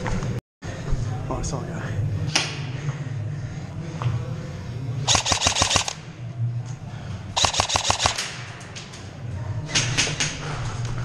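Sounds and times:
airsoft rifles firing bursts: 5.1 - 6.0, 7.4 - 8.4.

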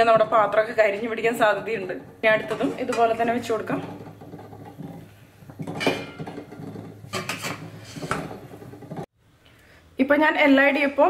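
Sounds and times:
metal plates clinking: 1.8 - 8.2.

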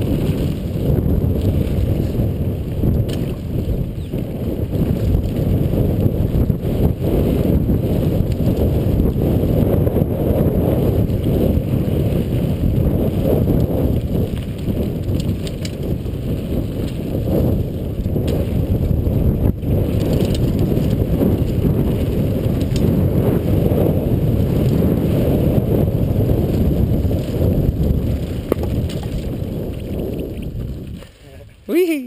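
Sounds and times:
bike ticking and rattling: 0.0 - 31.5
wind rushing on microphone: 0.0 - 32.0.

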